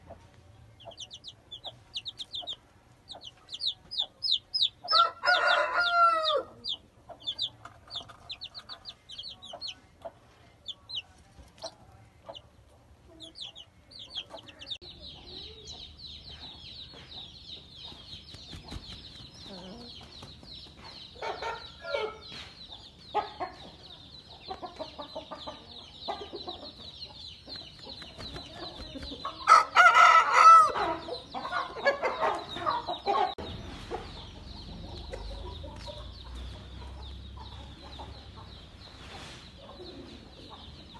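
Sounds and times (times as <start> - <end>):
chicks peeping: 0.0 - 40.9
rooster crowing: 4.9 - 6.7, 29.4 - 31.0.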